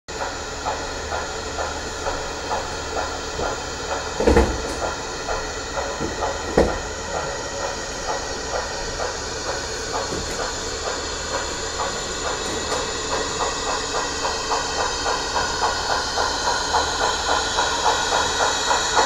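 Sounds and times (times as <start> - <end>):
constant steam hiss: 0.1 - 19.0
steam locomotive chuffing: 0.1 - 19.0
loud knocks: 0.7 - 11.0.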